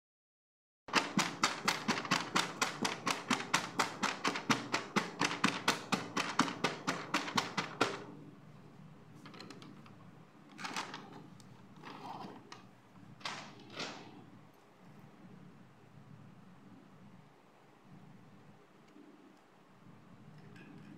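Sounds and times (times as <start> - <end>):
fingertips tapping on boxes: 0.9 - 8.1.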